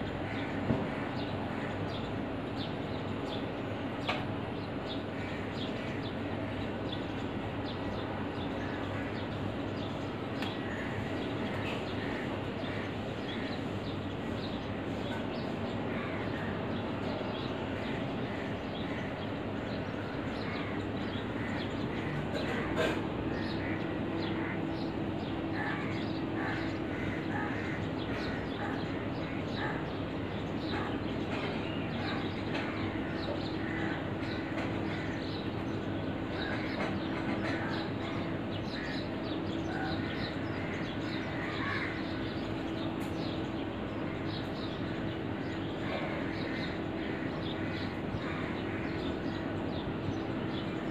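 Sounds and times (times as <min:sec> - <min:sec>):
outdoor background noise: 0:00.0 - 0:50.9
crows cawing: 0:15.1 - 0:50.6.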